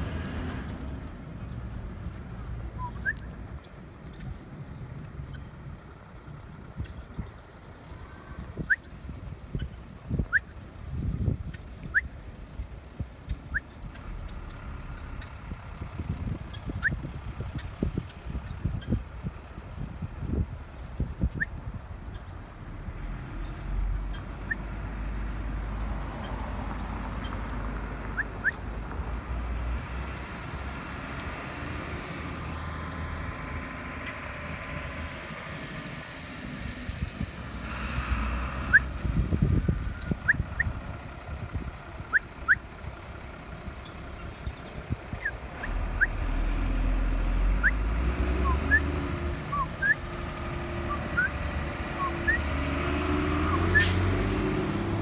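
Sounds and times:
road traffic rumble: 0:00.0 - 0:55.0
high bird chirps: 0:02.5 - 0:10.8, 0:13.2 - 0:15.6, 0:16.4 - 0:19.0, 0:23.2 - 0:29.7, 0:38.6 - 0:55.0.

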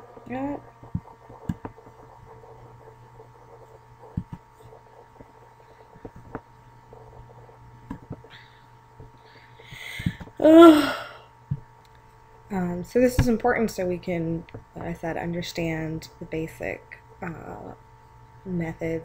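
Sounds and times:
faint electrical hum: 0:00.0 - 0:19.0
soft thumps and clicks: 0:04.1 - 0:05.3, 0:06.0 - 0:06.5.

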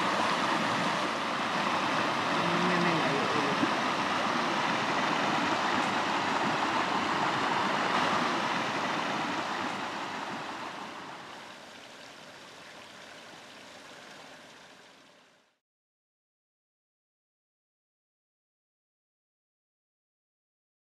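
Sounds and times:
stream rushing over rocks: 0:00.0 - 0:15.6.

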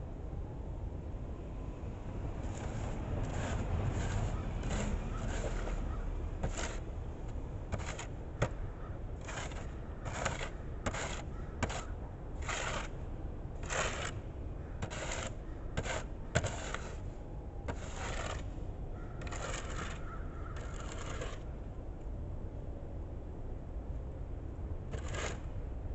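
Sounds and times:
car passing on snowy road: 0:02.3 - 0:08.5, 0:14.8 - 0:18.6
snow shovel scraping concrete: 0:02.4 - 0:06.8, 0:07.7 - 0:08.6, 0:09.2 - 0:12.9, 0:13.6 - 0:14.2, 0:14.8 - 0:17.1, 0:17.7 - 0:18.5, 0:19.2 - 0:20.0, 0:20.6 - 0:21.4, 0:24.9 - 0:25.4.

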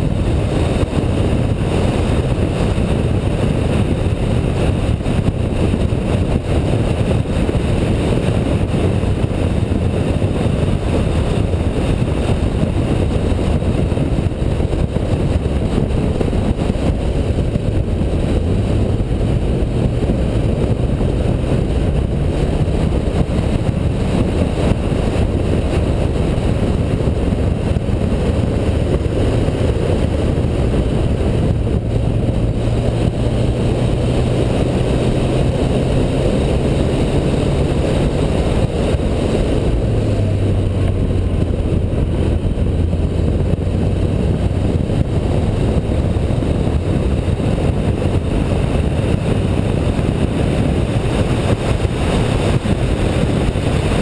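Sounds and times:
car engine at speed: 0:00.0 - 0:54.0
wind and tyre noise: 0:00.0 - 0:54.0.

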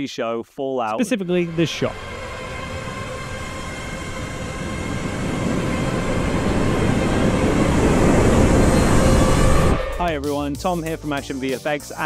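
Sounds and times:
deep rumbling explosion roar: 0:01.2 - 0:10.2.

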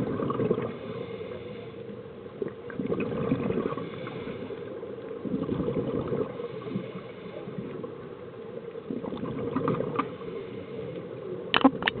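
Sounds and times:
underwater bubbles gurgling: 0:00.0 - 0:12.0.

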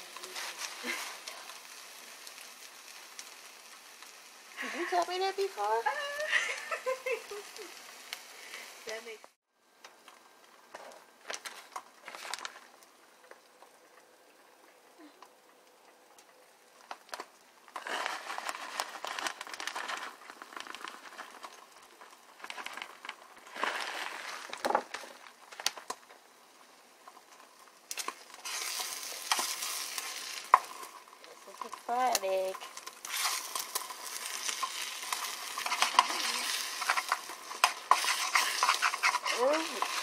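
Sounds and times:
eggs sizzling in a frying pan: 0:00.0 - 0:40.0
metal spoon scraping a pan: 0:28.4 - 0:30.9, 0:32.6 - 0:40.0.

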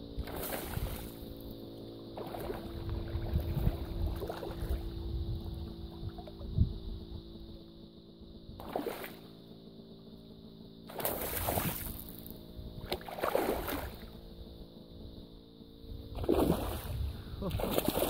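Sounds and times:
fish splashing in water: 0:00.2 - 0:01.1, 0:02.2 - 0:04.8, 0:08.6 - 0:09.2, 0:10.9 - 0:12.0, 0:12.9 - 0:14.1, 0:16.2 - 0:18.0.

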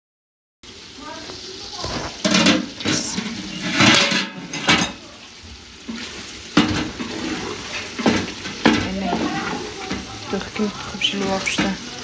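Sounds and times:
wooden spoon scraping metal pot: 0:01.8 - 0:05.0, 0:05.8 - 0:11.8.

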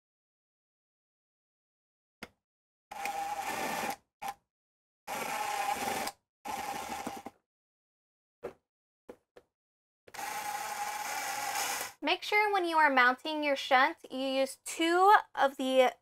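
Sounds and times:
cordless drill driving screws: 0:02.9 - 0:04.0, 0:05.1 - 0:07.3, 0:10.2 - 0:12.0.

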